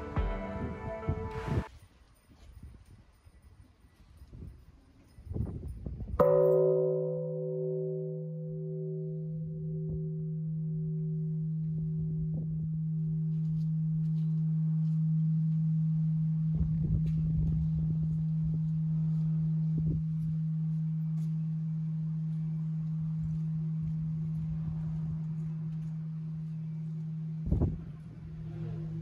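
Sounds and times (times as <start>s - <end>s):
temple bell ringing: 6.2s - 16.5s
low rumble: 22.0s - 29.0s.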